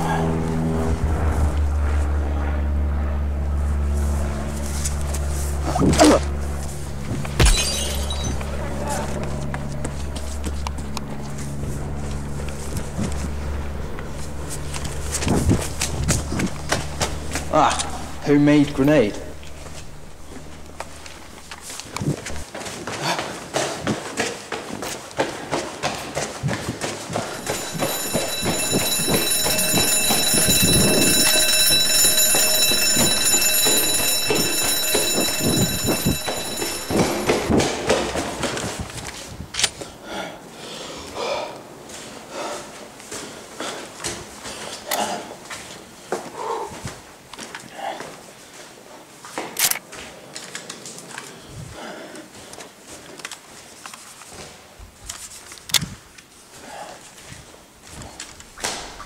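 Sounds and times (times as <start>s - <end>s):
loud ringing alarm: 6.2s - 22.4s, 27.1s - 38.4s
running footsteps on hard floor: 19.4s - 38.6s.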